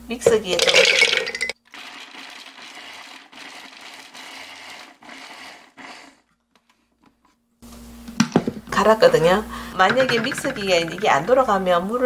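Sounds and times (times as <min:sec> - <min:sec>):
cranberries rattling in food processor: 0:00.6 - 0:05.7, 0:09.8 - 0:11.6.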